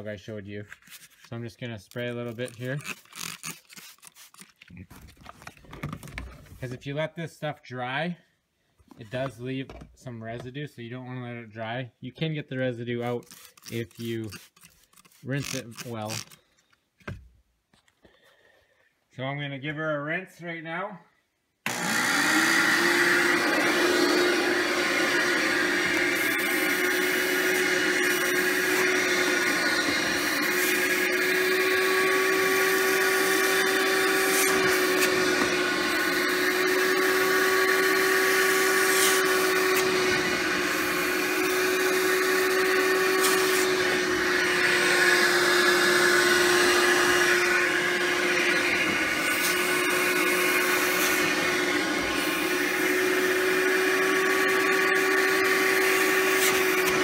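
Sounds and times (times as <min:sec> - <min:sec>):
carpet cleaner motor humming: 0:21.7 - 0:57.0.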